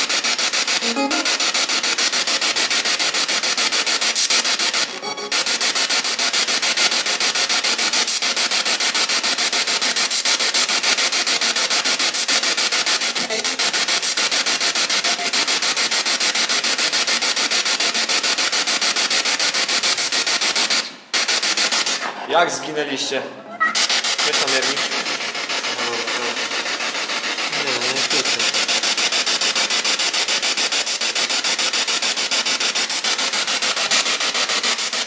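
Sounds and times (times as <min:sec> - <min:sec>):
pulsing radio static: 0:00.8 - 0:01.9, 0:13.2 - 0:13.8, 0:23.6 - 0:28.6.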